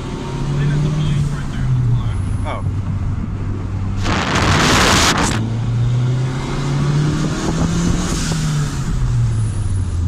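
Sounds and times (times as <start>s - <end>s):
loud rush of air: 3.9s - 5.5s.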